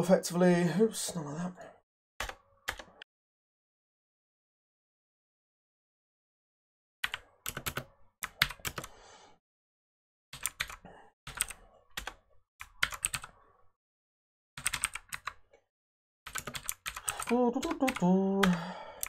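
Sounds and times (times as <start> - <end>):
typing on a computer keyboard: 7.0 - 8.9, 10.4 - 13.4, 14.6 - 15.5, 16.3 - 19.0.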